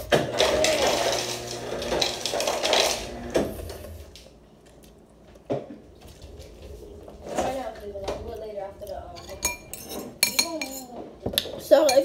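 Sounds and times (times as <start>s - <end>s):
dishware clink: 9.2s - 11.0s, 11.8s - 12.0s.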